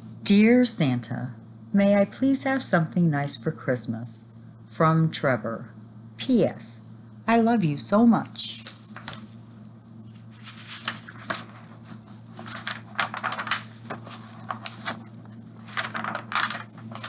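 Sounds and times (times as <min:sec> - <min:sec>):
steady low hum: 0:00.0 - 0:17.0
picture book pages turning: 0:08.5 - 0:09.4, 0:10.1 - 0:17.0.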